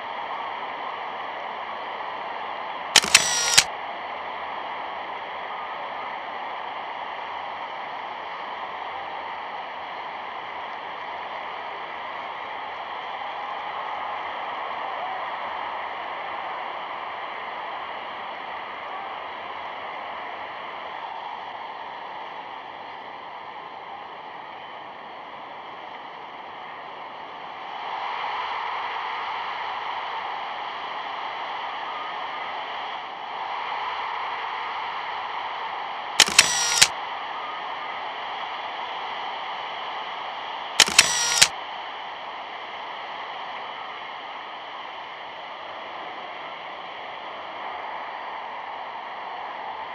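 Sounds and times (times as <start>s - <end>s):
camera shutter clicks: 3.0s - 3.7s, 36.2s - 36.9s, 40.8s - 41.5s.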